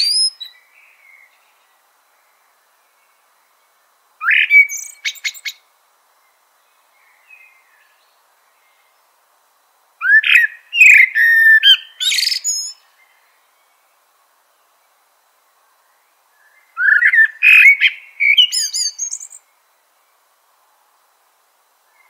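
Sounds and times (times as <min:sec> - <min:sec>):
mockingbird singing: 0:00.0 - 0:01.4, 0:04.2 - 0:05.6, 0:10.0 - 0:12.9, 0:16.8 - 0:19.4.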